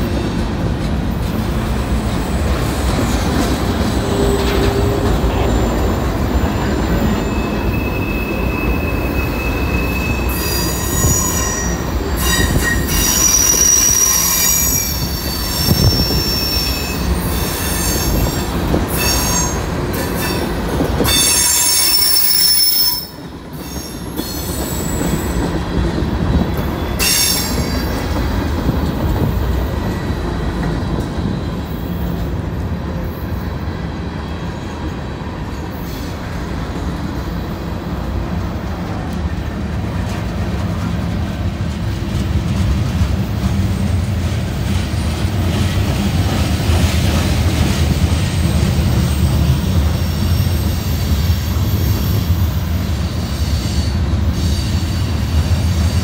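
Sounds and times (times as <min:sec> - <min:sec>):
rumble of wheels on track: 0:00.0 - 0:56.0
train wheels squealing: 0:01.8 - 0:25.8, 0:26.5 - 0:28.5, 0:47.9 - 0:56.0.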